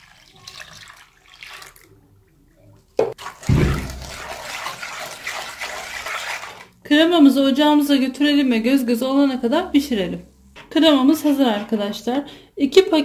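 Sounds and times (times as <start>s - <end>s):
milk pouring into pot: 0.0s - 2.0s, 3.2s - 6.8s
whisk stirring against pot: 3.2s - 6.8s, 10.8s - 12.1s.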